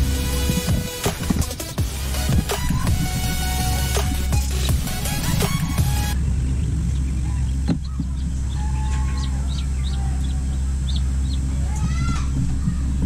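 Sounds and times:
steady low hum: 0.0 - 13.0
chickens peeping: 6.4 - 11.9.

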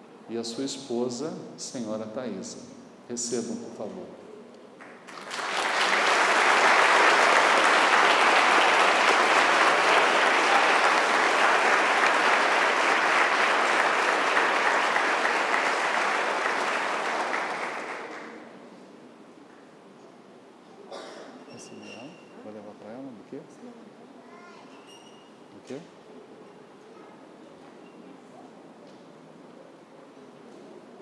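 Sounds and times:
crowd applauding: 4.8 - 18.5.

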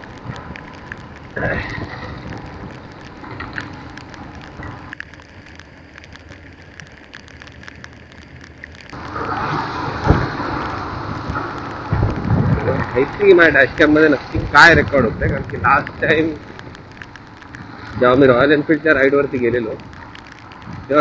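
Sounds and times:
wind rush: 0.0 - 5.0, 9.0 - 21.0
rain drops ticking on camera: 0.0 - 21.0
wet road noise: 0.0 - 21.0.

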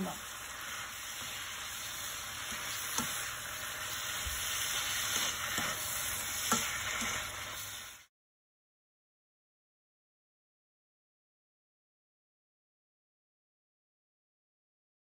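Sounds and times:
vegetables sizzling in a pan: 0.0 - 8.1
spatula tapping a pan: 2.4 - 3.3, 5.0 - 7.2.

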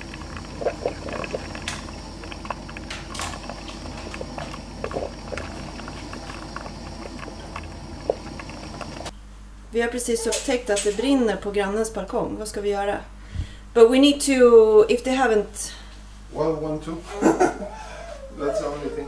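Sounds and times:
coffee maker gurgling: 0.0 - 9.1.

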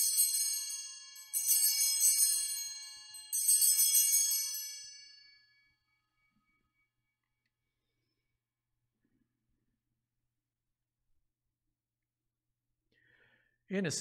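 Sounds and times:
small bells jingling: 0.0 - 5.8.

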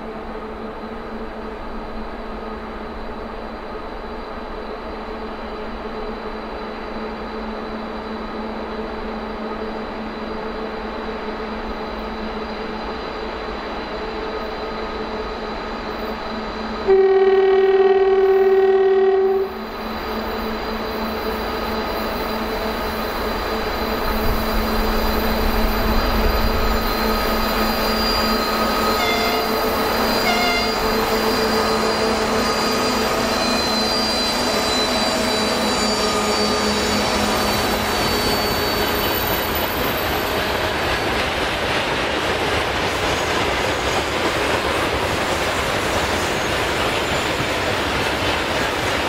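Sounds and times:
diesel locomotive engine drone: 0.0 - 49.0.

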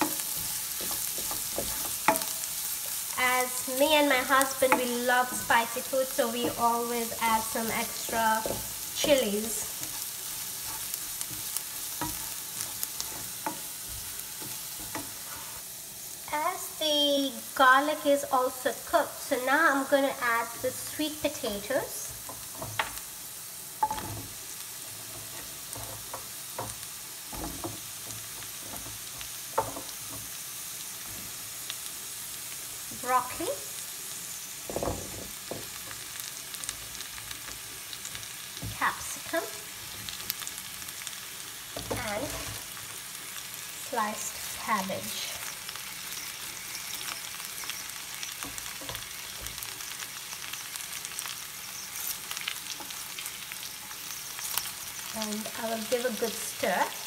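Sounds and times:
oil sizzling in a frying pan: 0.0 - 57.0
sharp knocks in a pan: 29.6 - 30.2
cabbage rustling into pan: 34.1 - 50.4.

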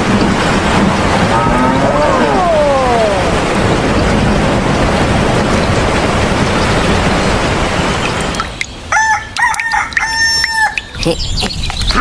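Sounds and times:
steady rain hiss: 0.0 - 12.0
rooster crowing: 8.9 - 10.8.

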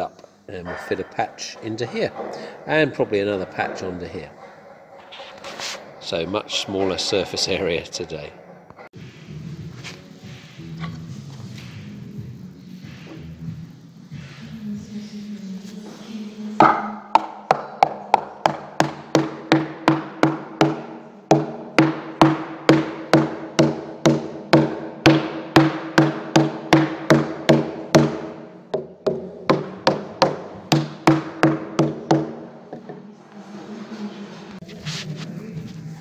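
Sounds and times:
wooden knocks: 16.6 - 33.1.

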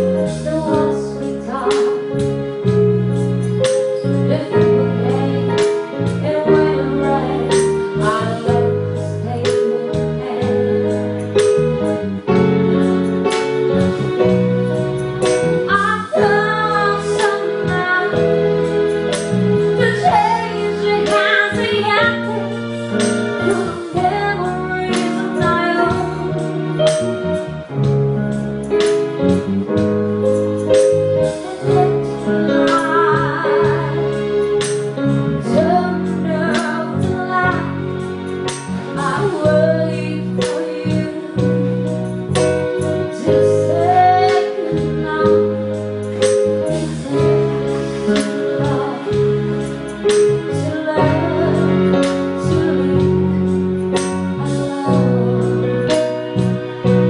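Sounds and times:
electric keyboard chords: 0.0 - 57.0
woman singing with vibrato: 15.7 - 18.4, 19.8 - 22.5, 23.4 - 26.4, 31.4 - 34.1, 39.0 - 41.7, 43.1 - 45.6, 50.4 - 53.2.

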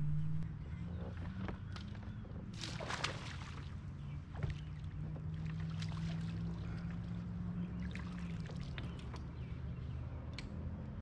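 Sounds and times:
steady low hum: 0.0 - 8.3
fish thrashing and splashing: 2.6 - 3.7.

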